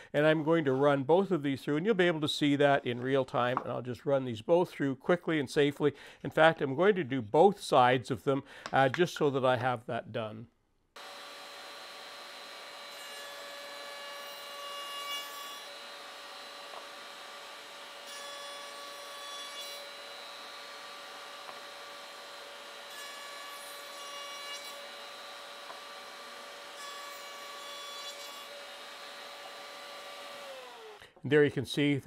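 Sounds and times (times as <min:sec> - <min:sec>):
router motor whining: 0:11.0 - 0:14.8, 0:15.6 - 0:19.2, 0:28.5 - 0:31.0.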